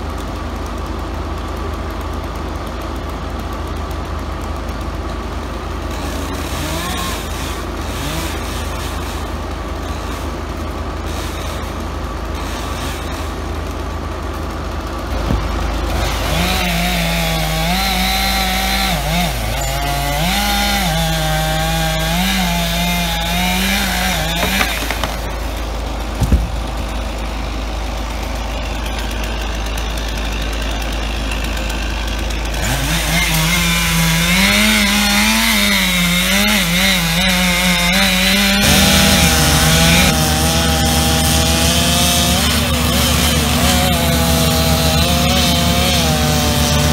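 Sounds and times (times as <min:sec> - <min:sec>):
chainsaw cutting wood: 0:00.0 - 0:46.9
sharp thump: 0:15.1 - 0:15.7, 0:26.2 - 0:26.8.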